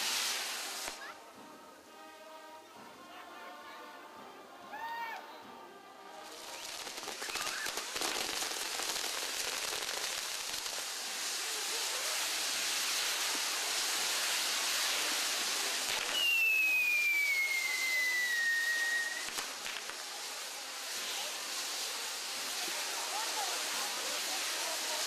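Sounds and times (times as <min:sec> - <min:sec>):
fireworks hissing and crackling: 0:00.0 - 0:25.0
high falling whistle: 0:16.0 - 0:19.3.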